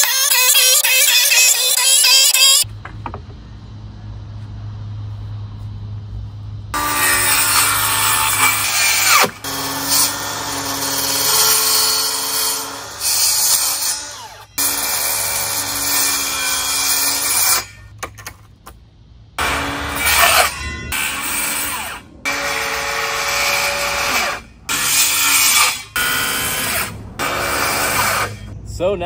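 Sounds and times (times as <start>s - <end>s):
circular saw cutting plywood: 6.8s - 17.8s, 19.4s - 28.6s.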